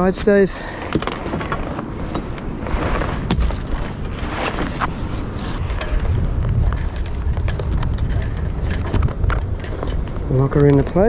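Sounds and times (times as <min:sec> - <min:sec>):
wind buffeting microphone: 0:00.0 - 0:11.0
sail cloth moving: 0:00.6 - 0:11.0
metal shackle clicks and knocks: 0:00.9 - 0:02.5, 0:03.3 - 0:04.1, 0:05.1 - 0:10.8.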